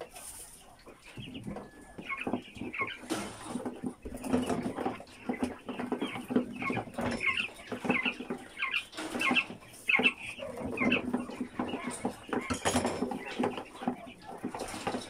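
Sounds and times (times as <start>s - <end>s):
quail chirping: 0.0s - 15.0s
wire cage rattling: 3.0s - 15.0s.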